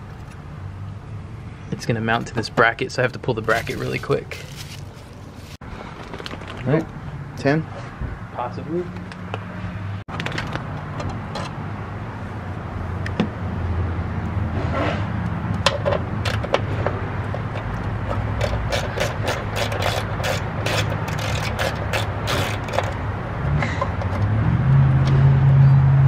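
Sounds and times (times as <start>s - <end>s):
vehicle engine humming: 0.0s - 5.6s, 8.1s - 26.0s
hand ratchet clicking: 18.4s - 23.0s.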